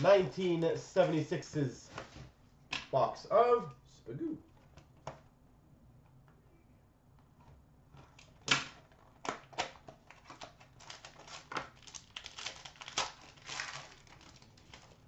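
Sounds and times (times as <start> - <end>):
papery rustling of cards: 8.0 - 15.0
cardboard snaps and clicks: 8.1 - 15.0.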